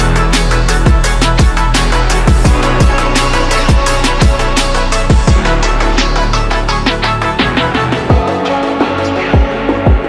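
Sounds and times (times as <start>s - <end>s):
deep kick drums: 0.0s - 5.7s, 6.9s - 8.4s, 9.4s - 10.0s
electronic music with heavy beat: 0.0s - 10.0s.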